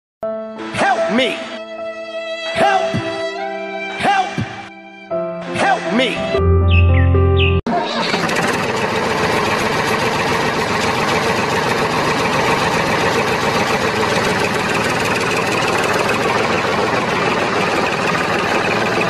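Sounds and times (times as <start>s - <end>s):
engine rough rumble: 7.7s - 19.0s.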